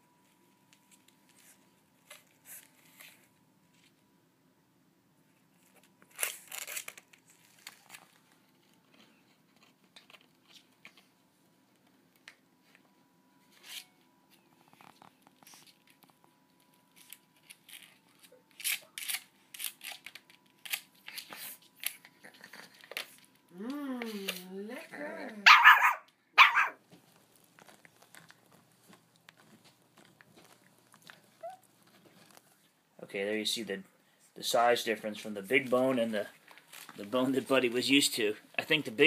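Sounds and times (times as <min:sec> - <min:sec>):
puppy gnawing a rawhide bone: 0:26.8 - 0:32.6.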